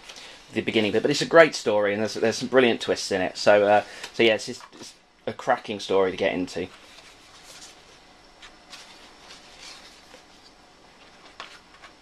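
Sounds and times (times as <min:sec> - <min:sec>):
book pages turning: 0:06.6 - 0:12.0.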